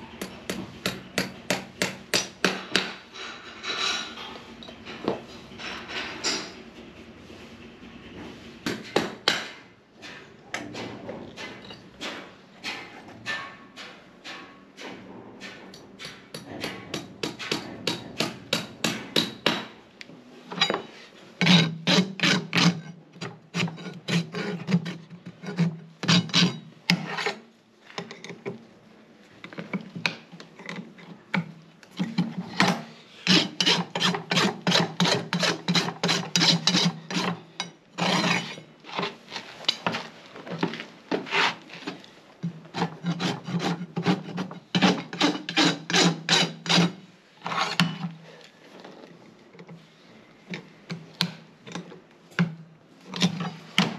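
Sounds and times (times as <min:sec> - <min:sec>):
hoof rasp scraping: 0:33.2 - 0:42.1.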